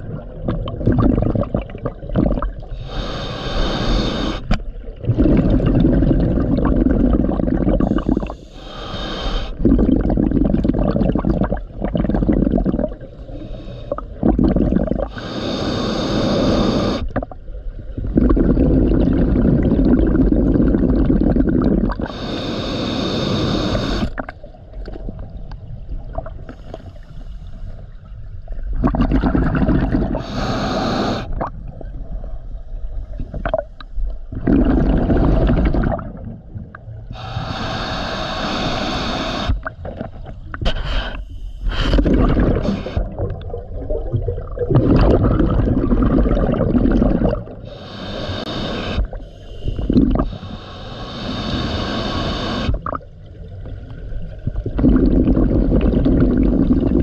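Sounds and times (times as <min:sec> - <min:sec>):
exhaled bubbles burbling: 0:00.0 - 0:02.8, 0:04.8 - 0:08.4, 0:09.6 - 0:13.2, 0:13.9 - 0:15.2, 0:16.9 - 0:22.2, 0:28.5 - 0:32.3, 0:33.1 - 0:37.6, 0:41.7 - 0:47.7, 0:48.9 - 0:50.4, 0:52.1 - 0:57.0
regulator inhale hiss: 0:02.7 - 0:04.6, 0:07.8 - 0:09.6, 0:13.2 - 0:14.2, 0:15.1 - 0:17.1, 0:22.0 - 0:24.2, 0:26.5 - 0:27.9, 0:30.2 - 0:31.4, 0:37.0 - 0:39.7, 0:40.6 - 0:43.1, 0:47.6 - 0:52.8.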